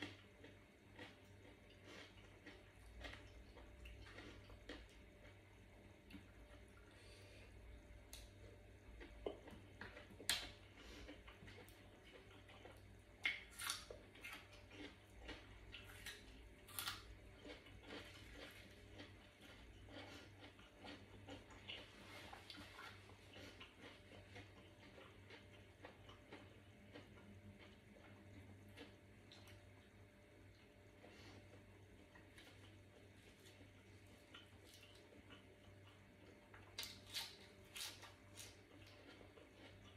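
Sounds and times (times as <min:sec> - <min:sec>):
wet chewing: 0:08.1 - 0:29.6, 0:30.5 - 0:39.9.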